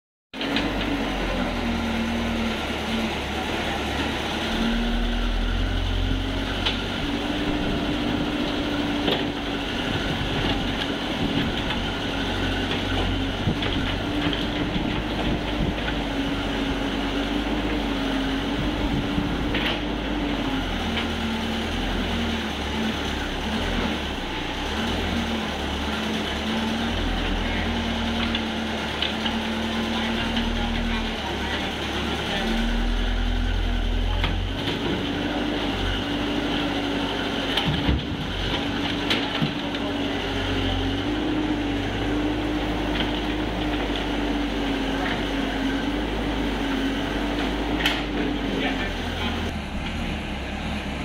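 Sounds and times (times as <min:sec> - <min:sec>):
excavator diesel engine running: 0:00.3 - 0:51.0.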